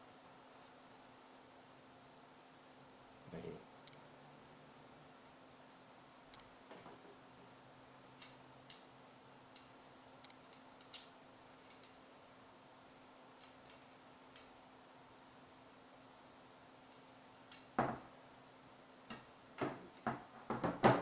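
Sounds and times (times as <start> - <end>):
faint steady hum: 0.0 - 21.0
metal parts clicking and tapping: 9.5 - 12.0, 13.4 - 14.6.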